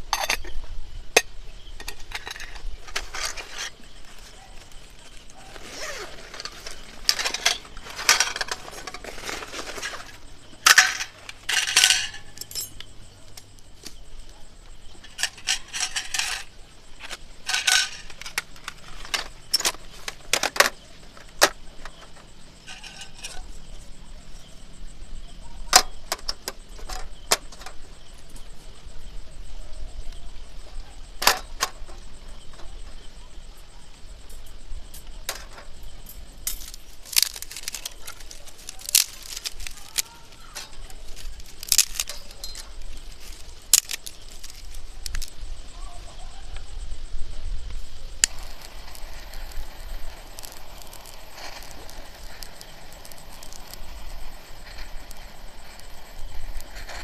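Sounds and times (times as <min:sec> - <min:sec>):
small metal items clinking: 0:00.0 - 0:00.6, 0:01.2 - 0:12.9, 0:14.9 - 0:23.6, 0:35.0 - 0:45.4, 0:48.2 - 0:57.0
rustling: 0:01.7 - 0:24.6, 0:34.9 - 0:46.3, 0:47.6 - 0:57.0.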